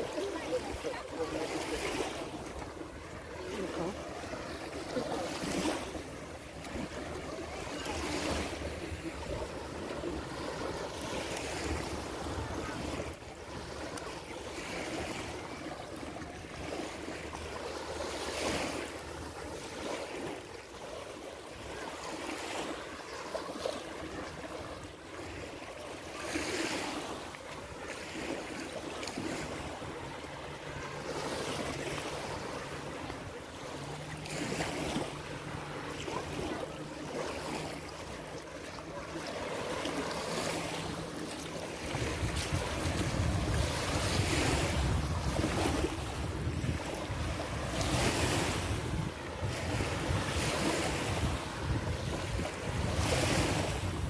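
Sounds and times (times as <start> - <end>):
small waves washing on shore: 0.0 - 54.0.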